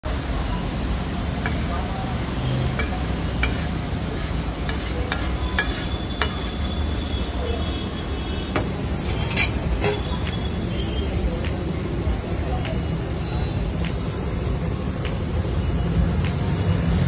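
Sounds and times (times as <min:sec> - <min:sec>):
metal spatula clicking on griddle: 0:02.8 - 0:06.5.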